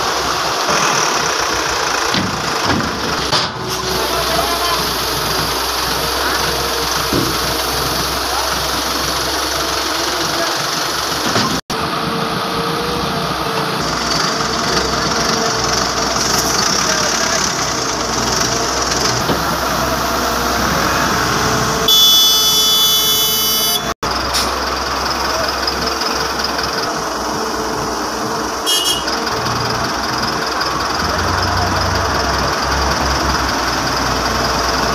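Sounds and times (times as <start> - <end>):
heavy diesel engines running: 0.0 - 34.9
truck horn: 21.8 - 24.5, 28.6 - 29.3.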